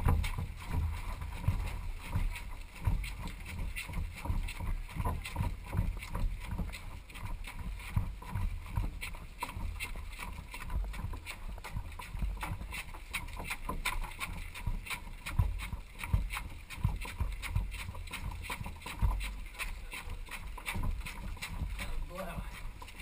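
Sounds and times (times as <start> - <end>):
quick jogging footsteps: 0.0 - 23.0.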